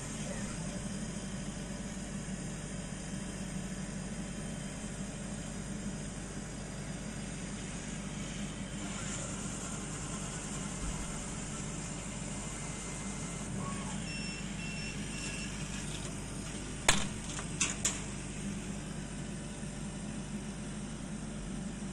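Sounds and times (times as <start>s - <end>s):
laser cutter hum: 0.0s - 21.9s
short high beeps: 14.0s - 15.5s.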